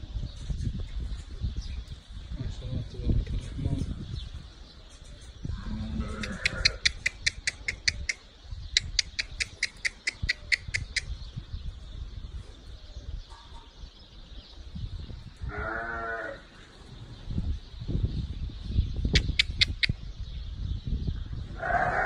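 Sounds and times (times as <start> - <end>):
rapid high chirps: 8.8 - 11.1
sheep bleating: 15.5 - 16.4.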